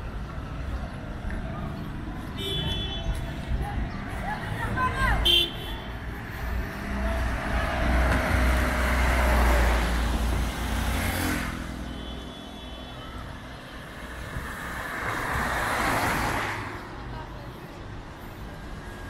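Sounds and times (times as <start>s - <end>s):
vehicle approaching: 5.9s - 11.8s.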